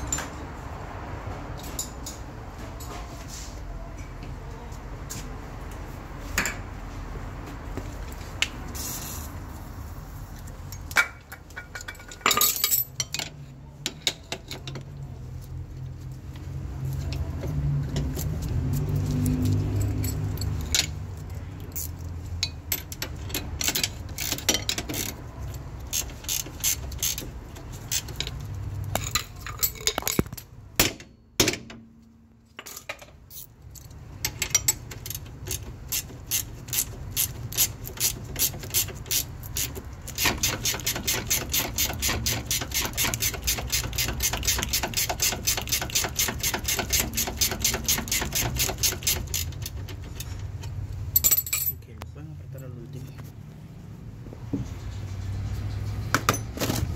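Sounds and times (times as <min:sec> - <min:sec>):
ratchet wrench clicking: 0:21.7 - 0:29.2, 0:34.3 - 0:50.2.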